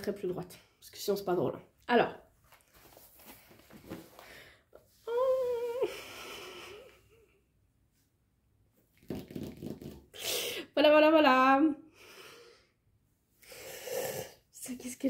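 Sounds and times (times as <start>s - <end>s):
woman humming: 5.0s - 6.1s.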